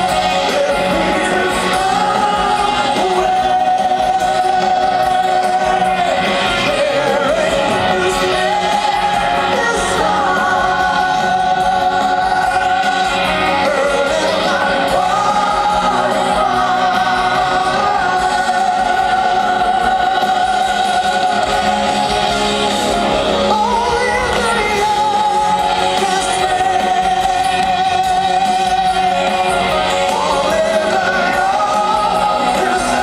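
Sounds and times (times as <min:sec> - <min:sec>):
drums: 0:00.0 - 0:33.0
electric guitars: 0:00.0 - 0:33.0
keyboards: 0:00.0 - 0:33.0
people singing long notes: 0:00.0 - 0:33.0.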